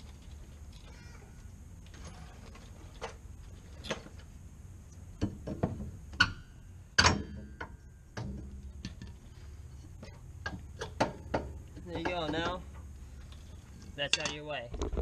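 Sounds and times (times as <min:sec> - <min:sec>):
tools and metal parts clinking: 0:01.8 - 0:04.2, 0:10.0 - 0:14.6.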